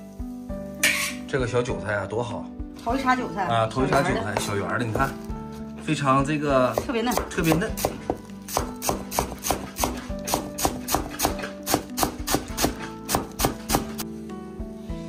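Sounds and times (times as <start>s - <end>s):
background music: 0.0s - 15.0s
cleaver chopping on wooden board: 3.9s - 5.2s, 6.7s - 14.0s.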